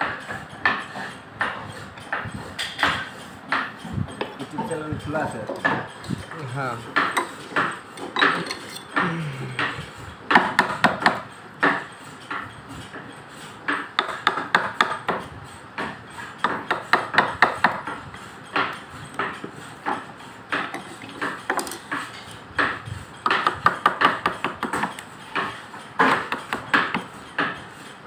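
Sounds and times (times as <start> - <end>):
mallet tapping chisel into wood: 14.0 - 15.2, 16.4 - 18.0, 23.2 - 27.6.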